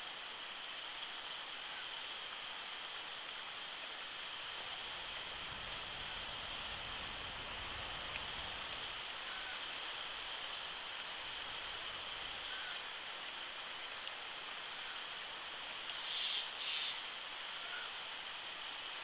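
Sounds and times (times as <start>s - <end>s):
microphone hiss: 0.0s - 19.0s
faint ticks: 13.9s - 14.2s, 15.8s - 17.0s.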